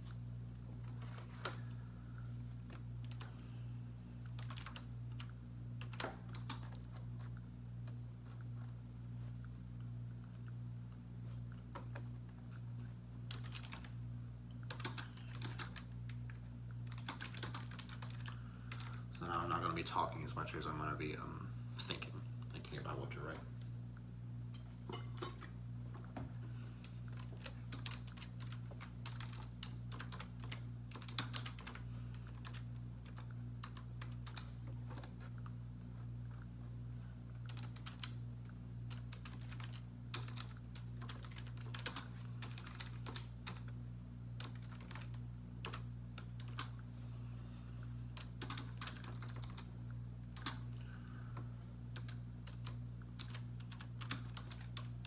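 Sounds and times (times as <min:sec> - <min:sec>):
typing on computer keyboard: 0:04.4 - 0:06.9, 0:13.3 - 0:13.9, 0:14.6 - 0:18.9, 0:27.2 - 0:35.1, 0:37.4 - 0:38.2, 0:38.9 - 0:43.7, 0:44.4 - 0:46.8, 0:48.2 - 0:49.7, 0:50.4 - 0:50.7, 0:52.0 - 0:54.9.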